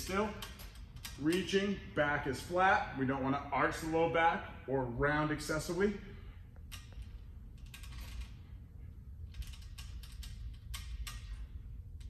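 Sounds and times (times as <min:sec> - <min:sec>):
strap hardware clicking and creaking: 0:00.0 - 0:01.8, 0:06.5 - 0:12.0
low steady hum: 0:00.0 - 0:12.0.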